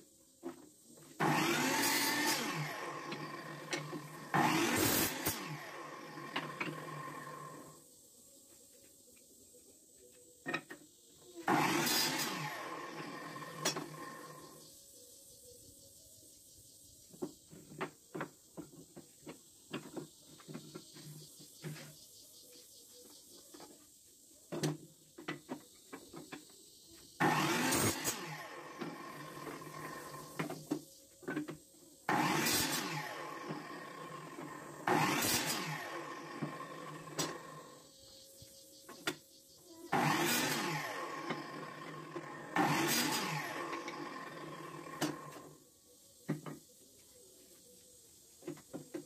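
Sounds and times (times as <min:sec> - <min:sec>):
miter saw cutting wood: 0:01.1 - 0:07.8, 0:11.4 - 0:14.6, 0:27.2 - 0:30.8, 0:32.1 - 0:38.0, 0:39.9 - 0:45.6.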